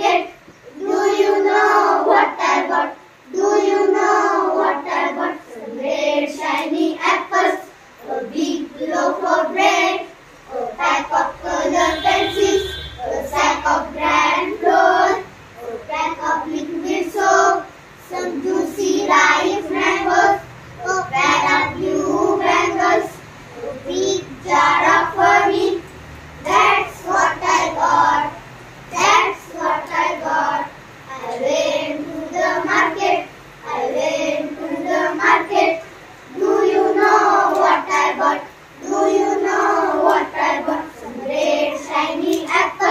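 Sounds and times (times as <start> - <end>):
children singing together: 0.0 - 42.9.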